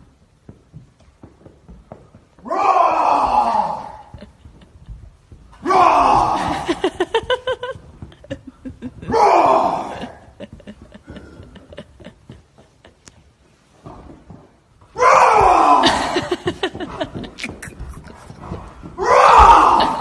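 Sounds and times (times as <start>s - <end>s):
person yelling: 5.6s - 6.7s, 9.1s - 10.2s, 19.0s - 20.0s.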